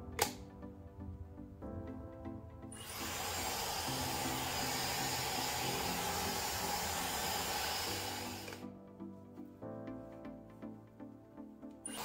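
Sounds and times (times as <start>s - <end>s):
background music: 0.0s - 12.0s
hair dryer blowing: 2.8s - 8.6s.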